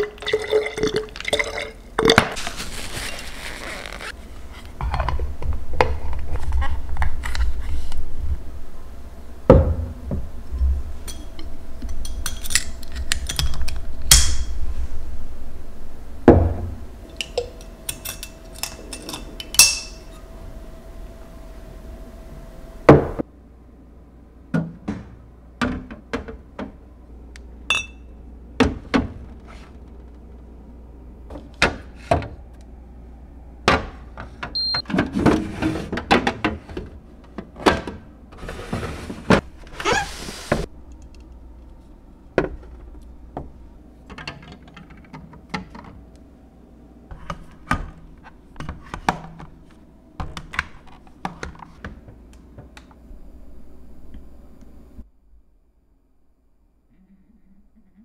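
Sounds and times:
low hum: 0:01.7 - 0:24.5, 0:52.1 - 0:58.0
bottles clinking on shelves: 0:17.2 - 0:20.1, 0:27.7 - 0:28.1.

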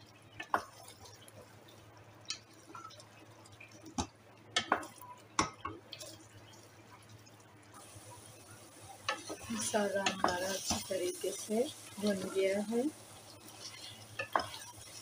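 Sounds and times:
faint steady hum: 0:00.0 - 0:15.0
wooden spatula stirring in a pot: 0:00.0 - 0:15.0
spatula knocking and scraping pot: 0:09.1 - 0:11.0, 0:13.6 - 0:14.8.

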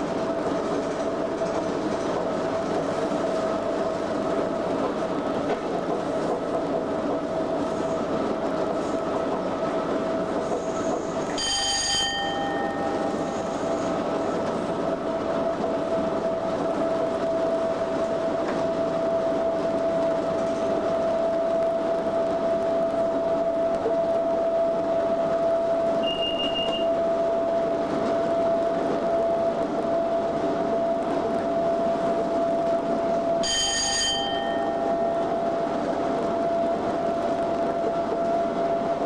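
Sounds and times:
locomotive running with whine: 0:00.0 - 0:39.0
short high ringing tone: 0:26.0 - 0:27.0, 0:33.4 - 0:35.1.

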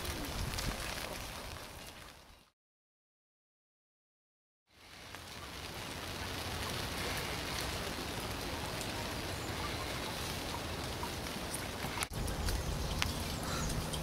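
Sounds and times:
steady rain hiss: 0:04.7 - 0:14.0.

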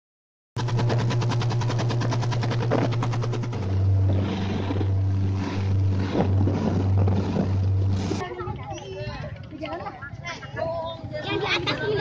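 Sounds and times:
rush of wake water: 0:00.6 - 0:08.2
motorboat engine running: 0:00.6 - 0:10.0, 0:10.6 - 0:12.0.

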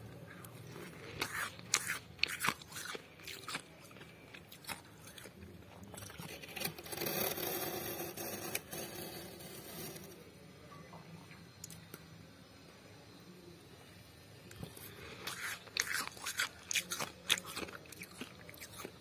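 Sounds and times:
frost crunching and scraping: 0:00.7 - 0:08.4.

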